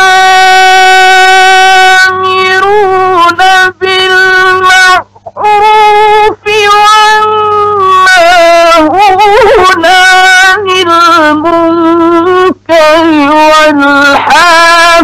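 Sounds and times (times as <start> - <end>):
man chanting melodically: 0.0 - 15.0.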